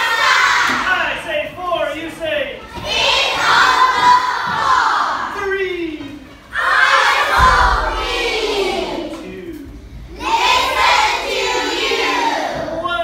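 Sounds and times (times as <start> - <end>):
children chanting in unison: 0.0 - 0.8, 2.7 - 5.3, 6.5 - 9.3, 10.1 - 12.8.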